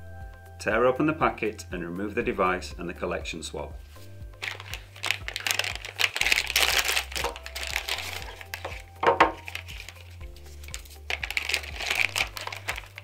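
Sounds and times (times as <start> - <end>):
soft background music: 0.0 - 13.0
plastic pouch crinkling: 4.4 - 13.0.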